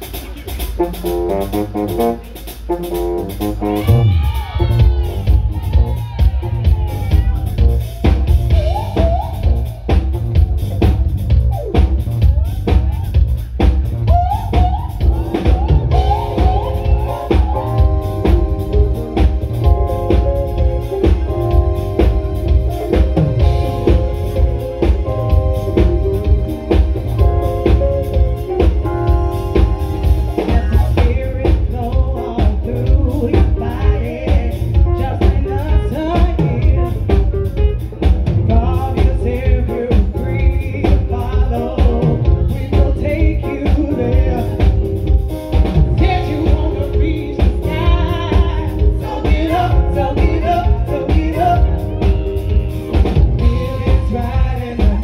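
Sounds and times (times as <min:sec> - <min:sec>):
drum kit beat: 0:00.0 - 0:55.0
electric guitar: 0:00.0 - 0:55.0
keyboard chords: 0:00.0 - 0:55.0
woman singing through a microphone: 0:30.3 - 0:37.3, 0:38.4 - 0:44.9, 0:46.0 - 0:52.4.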